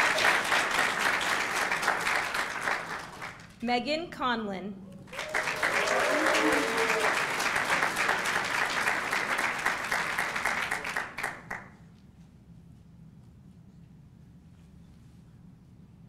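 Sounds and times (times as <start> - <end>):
audience applauding: 0.0 - 3.6, 5.1 - 11.7.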